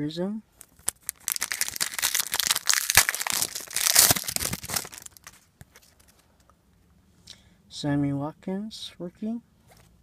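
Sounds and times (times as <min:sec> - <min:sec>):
foil wrapper crinkling: 0:00.6 - 0:06.2.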